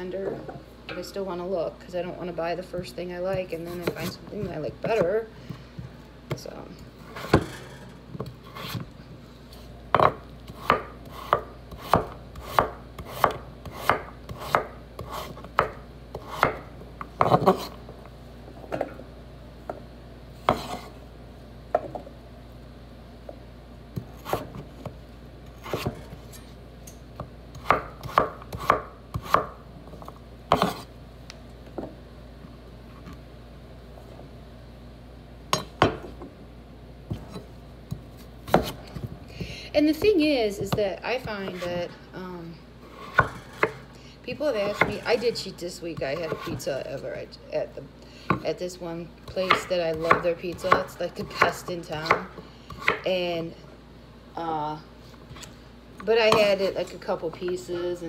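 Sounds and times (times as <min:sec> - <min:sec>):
knife chopping on wooden board: 0:09.9 - 0:16.6, 0:27.6 - 0:29.6, 0:30.5 - 0:30.9, 0:37.1 - 0:38.8, 0:43.0 - 0:43.8, 0:49.3 - 0:53.0.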